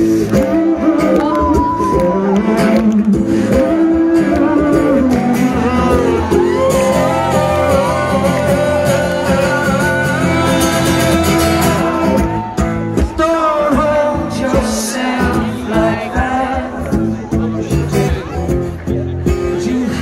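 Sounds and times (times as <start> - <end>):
man singing through a pa: 0.0 - 17.1, 19.4 - 20.0
strummed acoustic guitar: 0.0 - 20.0.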